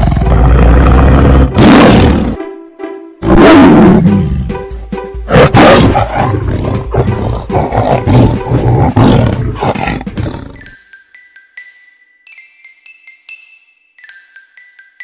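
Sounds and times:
big cat roaring: 0:00.0 - 0:02.3, 0:03.2 - 0:04.1, 0:05.3 - 0:10.6
background music: 0:00.0 - 0:15.0
big cat grunting calls: 0:05.3 - 0:10.6.

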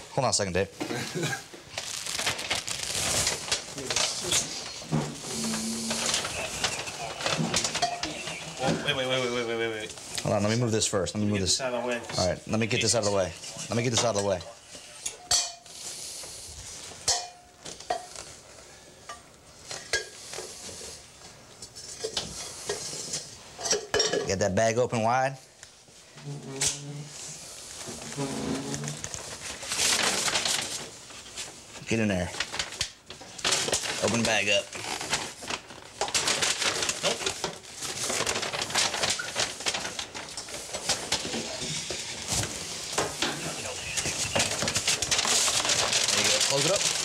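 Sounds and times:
paper bag crinkling: 0:01.7 - 0:10.6, 0:27.4 - 0:47.0.

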